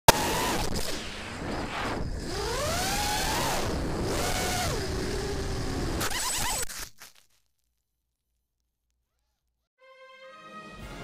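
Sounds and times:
drone motors whining: 0.1s - 6.7s.

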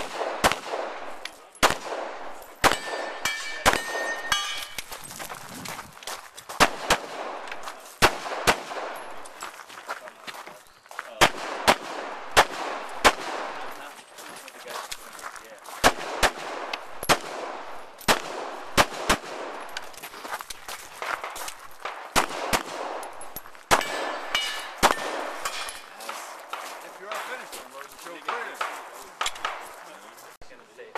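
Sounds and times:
fainter distant shots: 0.0s - 4.8s, 6.6s - 9.4s, 11.2s - 14.0s, 15.8s - 19.9s, 20.9s - 30.0s
handgun shots: 0.0s - 4.9s, 6.6s - 9.4s, 15.8s - 20.0s, 21.0s - 27.2s, 28.2s - 29.8s.

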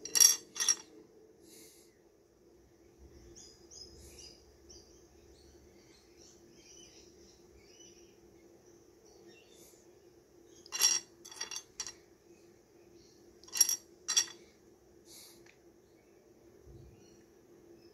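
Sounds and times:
stones clinking together: 0.0s - 0.8s, 10.7s - 11.9s, 13.4s - 14.4s.

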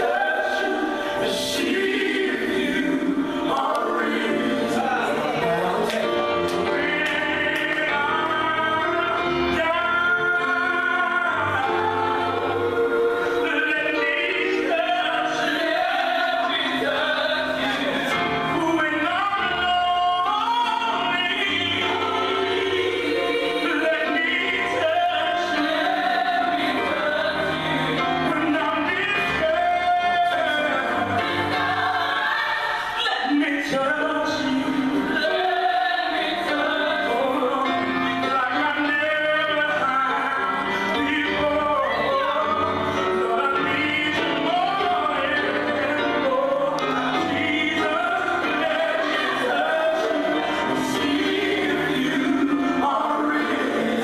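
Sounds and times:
gospel choir singing: 0.0s - 54.0s.

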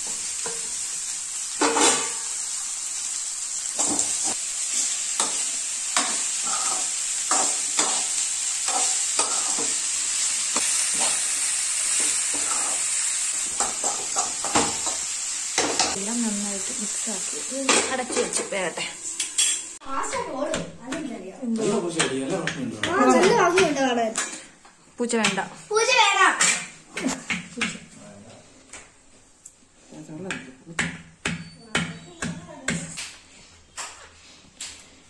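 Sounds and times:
food sizzling in hot oil: 0.0s - 20.2s.

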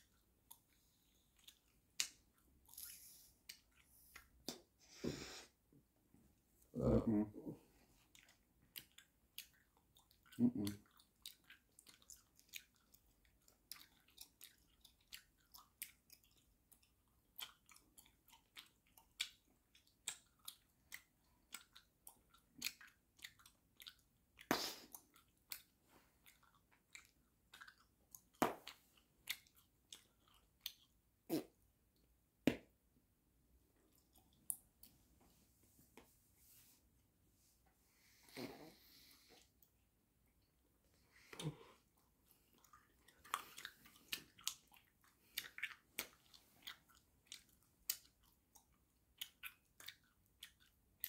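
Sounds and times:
gum chewing smacks and clicks: 0.0s - 4.8s, 8.0s - 31.6s, 33.8s - 35.0s, 41.3s - 51.0s.

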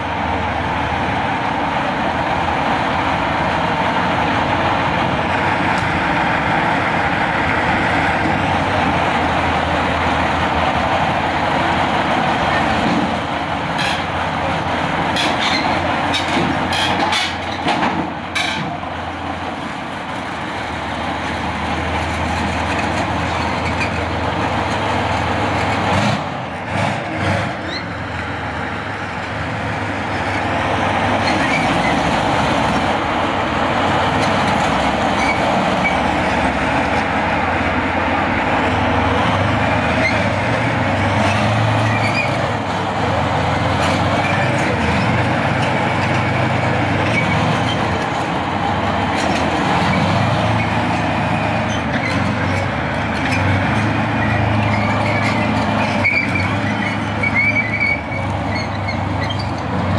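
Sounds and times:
tank diesel engine running: 0.0s - 59.9s
tank tracks rattling over concrete: 3.6s - 59.9s.

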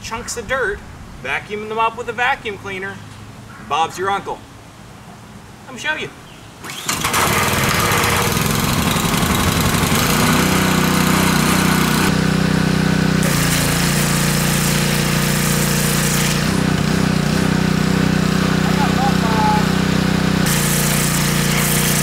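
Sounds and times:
pressure washer running: 6.6s - 22.0s
water jet hissing: 13.2s - 17.0s, 18.5s - 22.0s.

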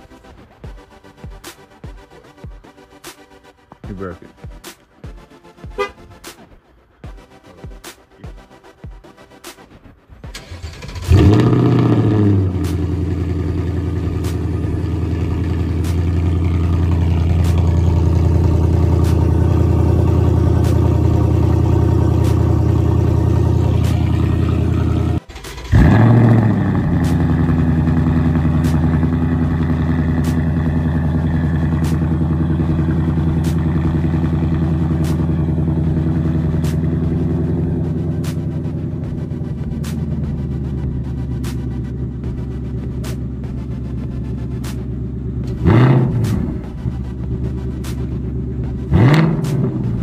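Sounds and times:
engine starting and flaring: 10.2s - 50.0s
loud engine idling: 10.6s - 50.0s.

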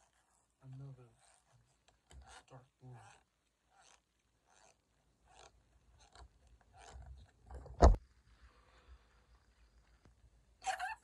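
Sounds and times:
balloon sharp smack: 7.8s - 8.0s.

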